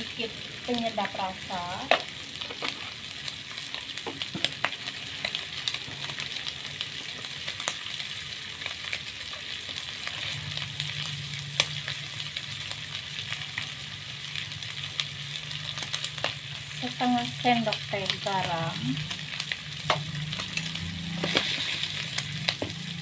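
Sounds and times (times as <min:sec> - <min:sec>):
food sizzling in a wok: 0:00.0 - 0:23.0.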